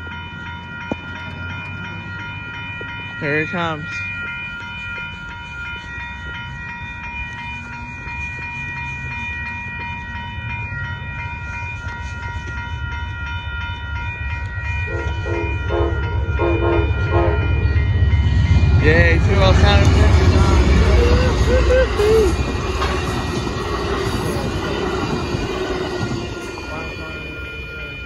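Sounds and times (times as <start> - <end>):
railroad crossing bells ringing: 0.0 - 28.0
train rumbling: 0.0 - 28.0
locomotive horn blasts: 14.9 - 17.5.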